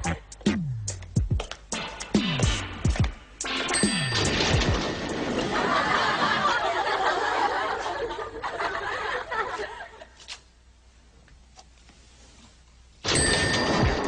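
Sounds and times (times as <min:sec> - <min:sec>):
audience laughter: 0:05.2 - 0:10.2.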